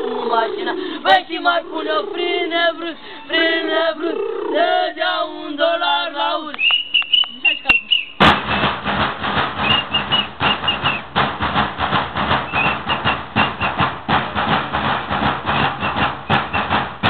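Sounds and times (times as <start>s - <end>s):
whistle toots: 6.5s - 8.3s, 9.6s - 11.1s, 12.4s - 13.9s, 15.8s - 16.8s
drums beaten fast: 7.7s - 17.0s.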